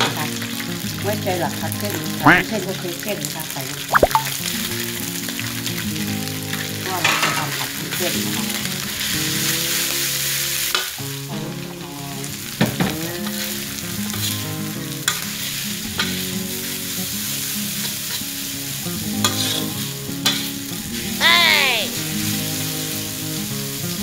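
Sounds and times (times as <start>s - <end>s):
noodles sizzling in a wok: 5.4s - 21.0s, 22.0s - 24.0s.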